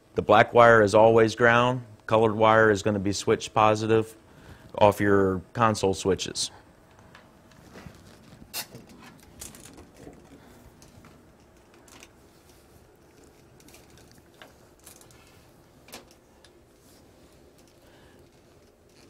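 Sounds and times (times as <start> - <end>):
hands rubbing and rustling: 7.4 - 19.0.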